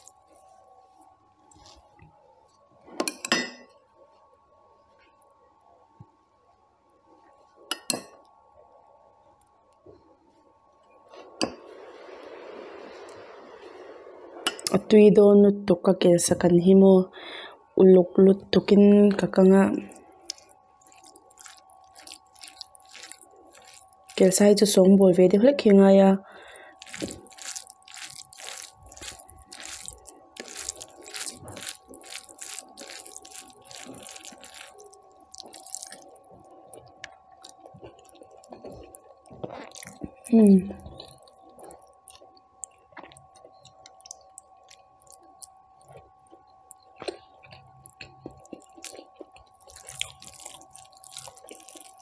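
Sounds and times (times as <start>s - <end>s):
crackling crunches of mixing rice: 0.0s - 2.7s, 19.8s - 24.8s, 26.3s - 52.0s
food being handled: 20.3s - 24.4s, 26.7s - 36.6s, 48.4s - 52.0s.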